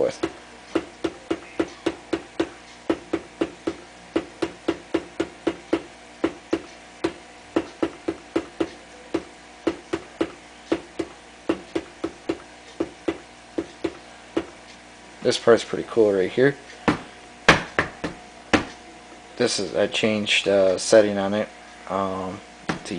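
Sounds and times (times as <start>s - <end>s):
rapid tapping on floor: 0.2s - 14.6s, 16.9s - 18.7s.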